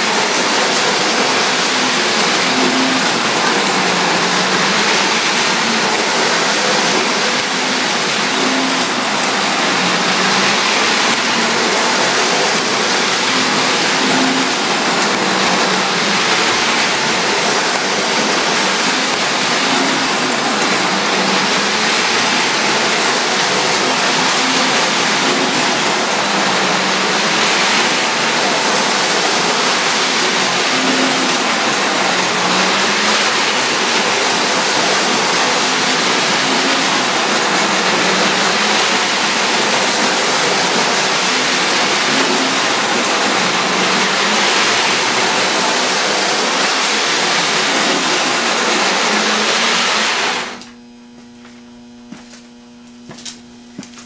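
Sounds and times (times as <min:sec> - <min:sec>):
hum rising and falling in pitch: 0:00.0 - 0:54.0.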